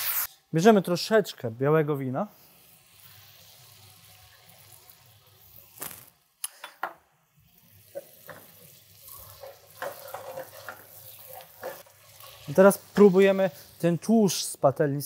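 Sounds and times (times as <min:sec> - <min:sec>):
wine sizzling in frying pan: 0:00.0 - 0:00.3, 0:02.4 - 0:15.0
metal utensil clinking pan: 0:09.1 - 0:12.5.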